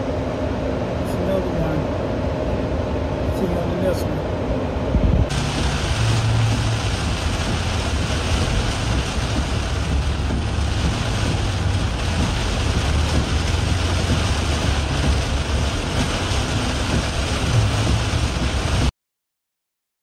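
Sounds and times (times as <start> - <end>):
tyre and road rumble: 5.0 - 18.9
heavy rain on car: 5.3 - 18.9.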